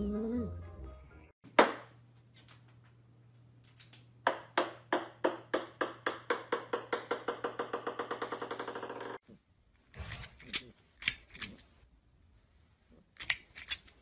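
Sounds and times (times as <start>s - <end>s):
ping-pong ball bouncing on wooden floor: 4.2s - 9.2s.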